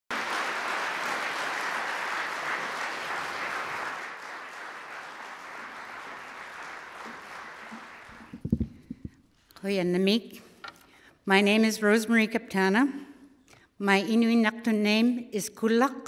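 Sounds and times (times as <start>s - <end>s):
audience applauding: 0.1s - 9.0s.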